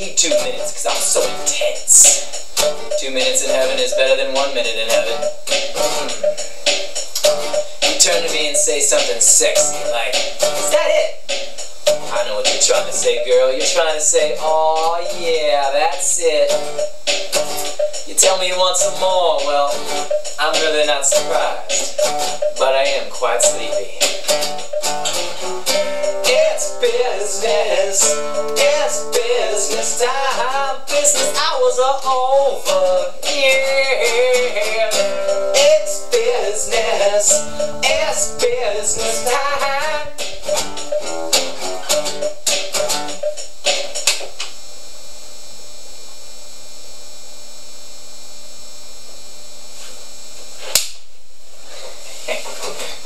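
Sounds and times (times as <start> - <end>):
strummed guitar: 0.0 - 44.3
electrical mains hum and hiss: 0.0 - 53.0
sharp click: 50.7 - 51.0.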